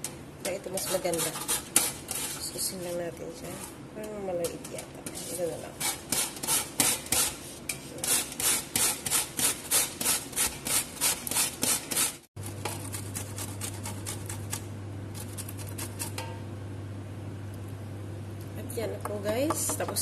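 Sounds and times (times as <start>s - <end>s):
vegetable grating on grater: 0.7s - 3.7s, 4.5s - 16.2s.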